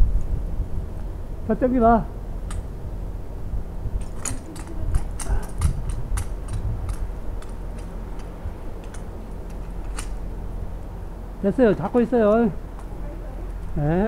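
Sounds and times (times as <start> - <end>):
low rumble: 0.0 - 14.0
sharp clicks and ticks: 4.0 - 10.2.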